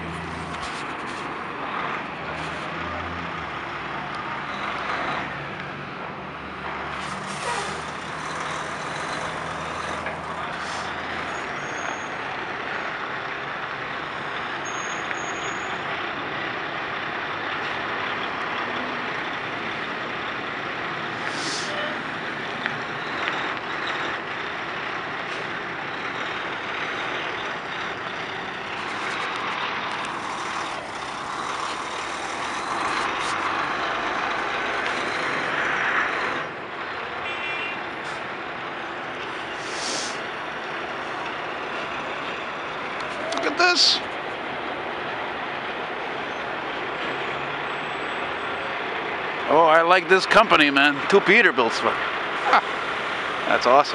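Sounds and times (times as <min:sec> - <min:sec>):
diesel truck engine running: 0:00.0 - 0:14.6, 0:16.0 - 0:37.3
air brake hiss: 0:21.3 - 0:21.9, 0:39.6 - 0:40.2.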